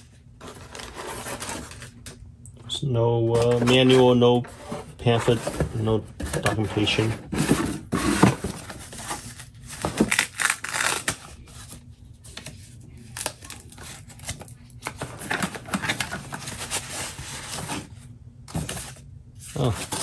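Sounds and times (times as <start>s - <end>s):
foam wrapping crinkling: 7.9s - 11.6s.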